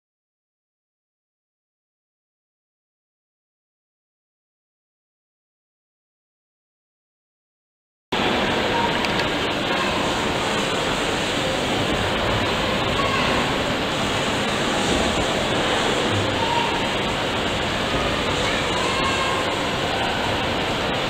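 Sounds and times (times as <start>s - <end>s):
faint voices: 8.2s - 21.0s
pumping engine rushing noise: 8.2s - 21.0s.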